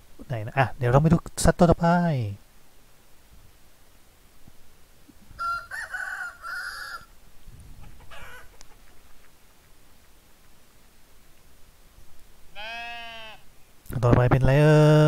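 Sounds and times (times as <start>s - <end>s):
chicken call: 5.4s - 7.1s, 7.8s - 9.2s.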